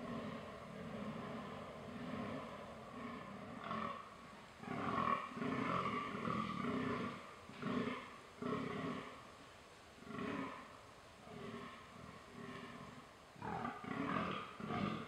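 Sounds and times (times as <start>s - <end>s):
deer grunting: 0.0s - 9.2s.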